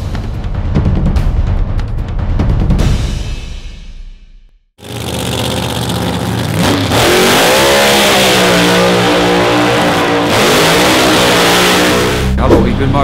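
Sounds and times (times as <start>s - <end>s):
drag racing car engines revving: 4.8s - 13.0s.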